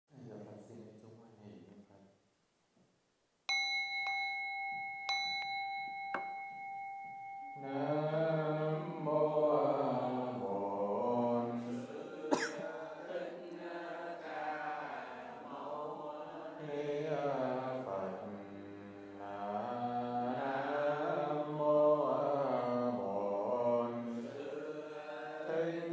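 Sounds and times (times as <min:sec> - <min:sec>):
bowl bell ringing: 0:03.5 - 0:09.9
slow chanting: 0:03.5 - 0:25.9.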